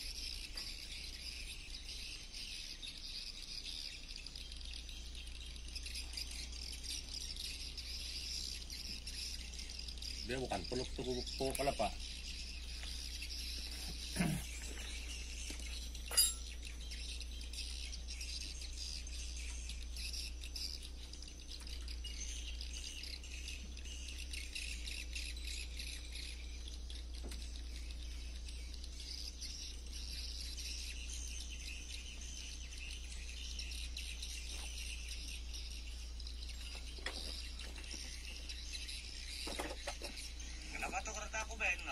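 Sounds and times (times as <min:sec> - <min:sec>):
low steady rumble: 0:00.0 - 0:41.9
high-pitched insect chorus: 0:02.5 - 0:15.3.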